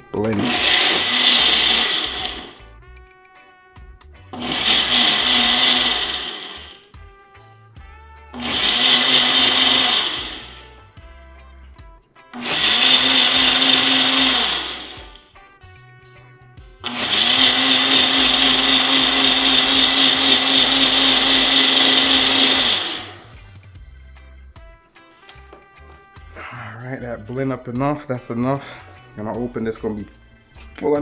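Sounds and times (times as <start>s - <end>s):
blender running in pulses: 0.2s - 2.7s, 4.4s - 6.9s, 8.3s - 10.8s, 12.4s - 15.2s, 16.8s - 23.5s.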